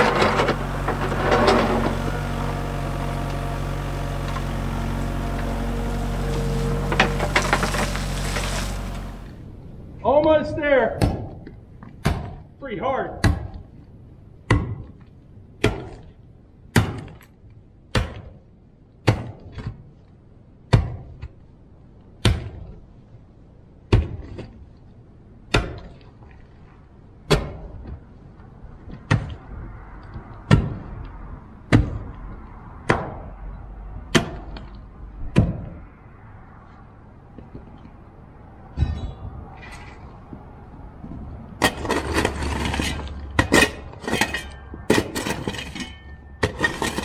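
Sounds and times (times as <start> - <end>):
steady low rumble: 0.0 - 12.6, 24.6 - 46.5.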